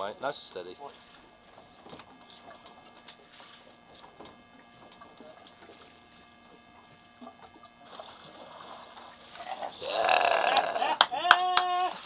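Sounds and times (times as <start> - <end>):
water sloshing against boat: 0.0 - 9.8.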